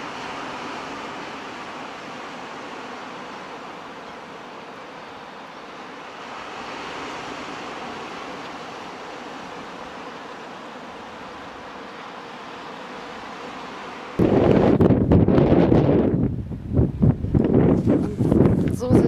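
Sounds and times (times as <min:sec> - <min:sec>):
surf washing onto pebble shore: 0:00.0 - 0:14.9.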